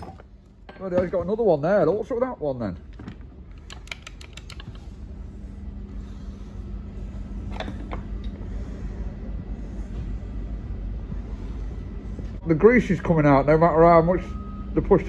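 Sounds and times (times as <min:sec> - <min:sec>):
low steady hum: 0:00.0 - 0:15.0
grease gun clicks and rattles: 0:03.6 - 0:04.9.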